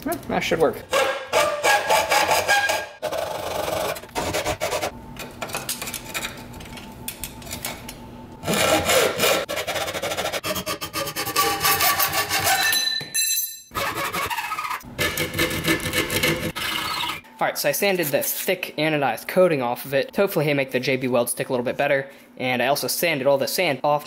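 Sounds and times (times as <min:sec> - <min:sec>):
hacksaw cutting metal plate: 0:00.9 - 0:04.9, 0:08.4 - 0:12.8, 0:13.7 - 0:17.2.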